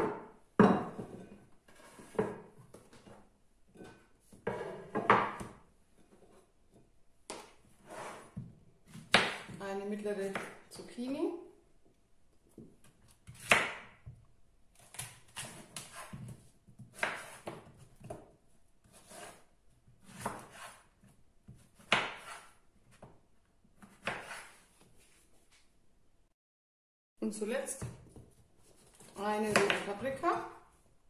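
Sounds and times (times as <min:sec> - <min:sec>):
knife cutting on wooden board: 0:14.8 - 0:18.2, 0:18.8 - 0:20.9, 0:21.5 - 0:22.6, 0:23.8 - 0:24.6.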